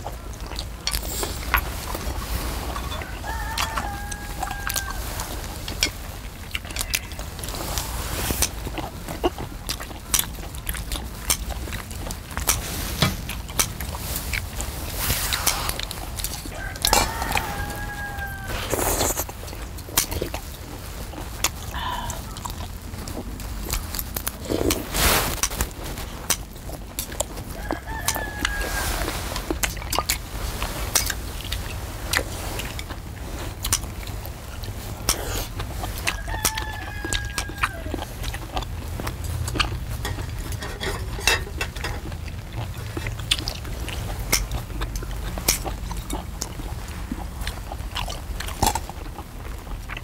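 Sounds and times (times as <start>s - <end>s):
eating noises: 0.0s - 50.0s
rooster crowing: 2.7s - 5.5s, 16.5s - 19.2s, 27.5s - 29.2s, 36.0s - 38.1s
utensils clinking on a pan: 40.0s - 42.1s.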